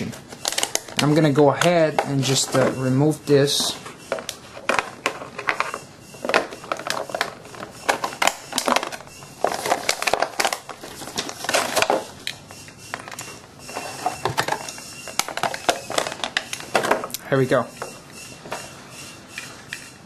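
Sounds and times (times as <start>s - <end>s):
plastic packaging crackling: 0.2s - 2.7s, 3.6s - 17.2s.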